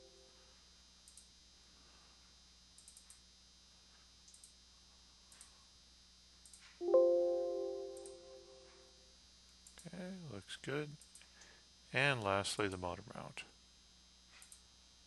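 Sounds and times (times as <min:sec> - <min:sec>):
computer mouse clicks: 0:01.1 - 0:01.3, 0:02.8 - 0:03.2, 0:04.3 - 0:04.6, 0:05.3 - 0:05.5
computer alert chime: 0:06.8 - 0:08.7.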